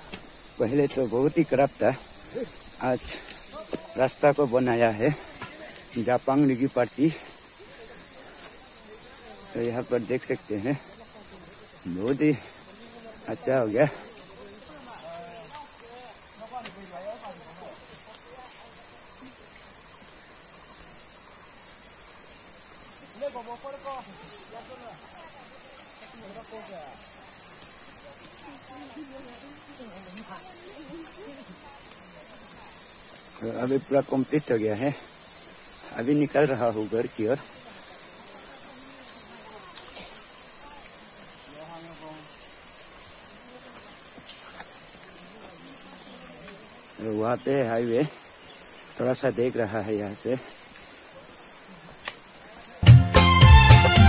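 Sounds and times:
insects buzzing: 0.0 - 54.0
faint distant voices: 23.0 - 52.8.

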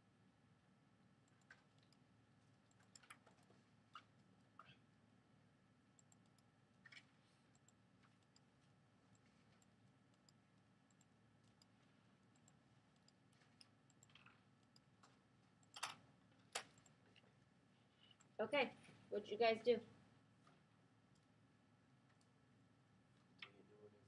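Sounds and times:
faint room hum: 0.0 - 24.0
soft clicks: 6.0 - 8.5, 9.1 - 17.0.

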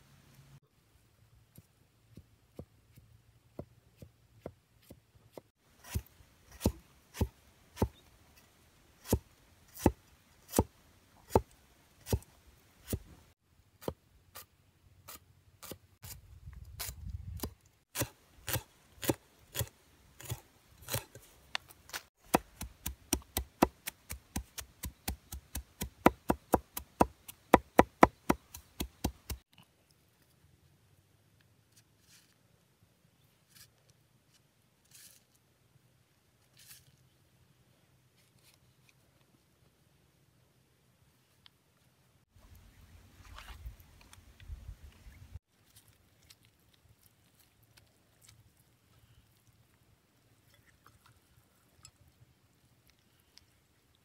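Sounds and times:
knife chopping on wood: 18.0 - 21.2, 22.2 - 29.4.

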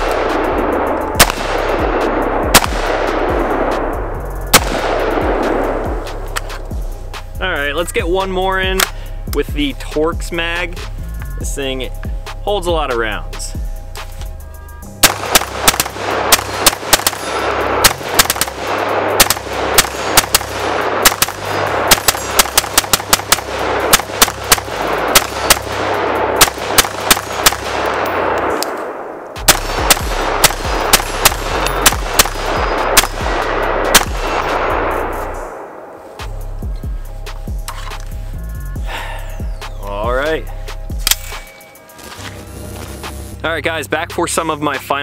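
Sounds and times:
rifle shots in rapid strings: 0.0 - 6.6, 15.0 - 35.7.

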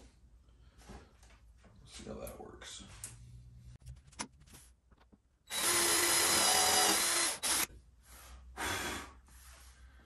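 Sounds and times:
cordless drill drilling: 5.5 - 7.7.

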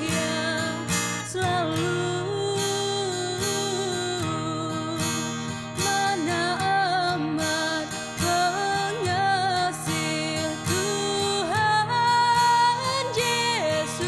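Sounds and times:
young woman singing: 0.0 - 14.0.

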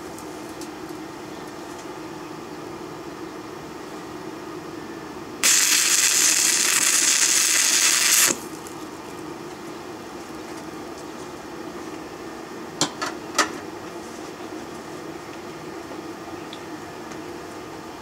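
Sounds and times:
welding arc crackling: 5.4 - 8.7.

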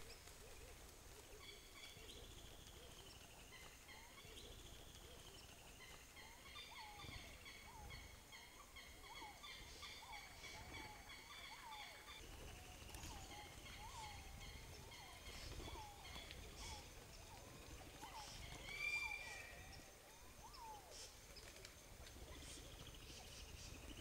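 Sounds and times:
short rising-and-falling whistles: 18.7 - 19.8.

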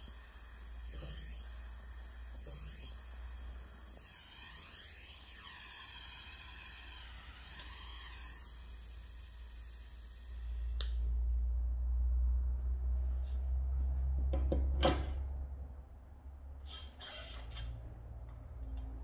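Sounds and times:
gas torch flame hissing: 0.0 - 11.6
low hum: 10.2 - 19.0.

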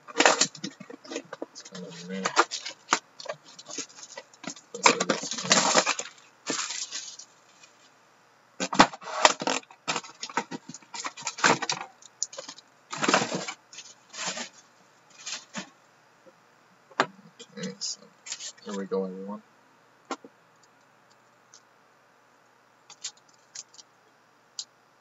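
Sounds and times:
plastic shrink wrap crinkling: 0.1 - 7.9.

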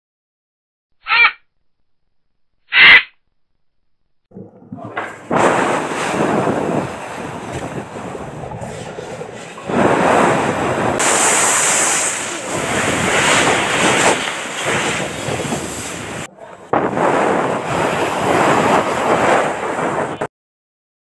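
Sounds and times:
sea rushing underwater: 4.3 - 20.3.

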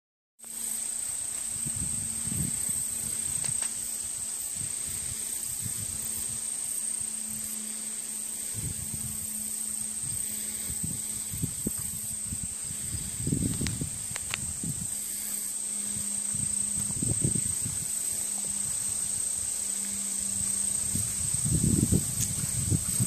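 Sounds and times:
insect chorus drone: 0.4 - 23.0
wind rumble on microphone: 1.0 - 23.0.

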